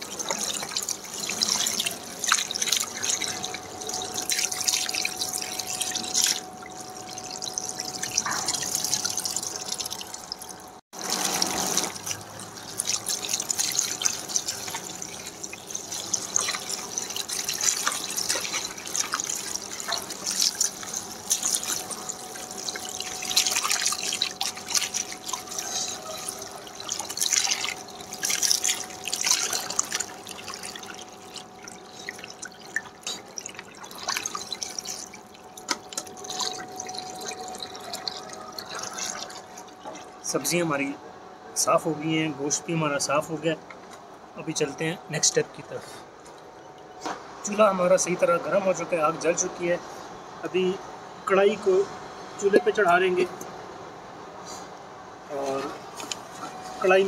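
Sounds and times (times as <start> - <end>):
water splashing and trickling: 0.0 - 49.8, 54.5 - 57.0.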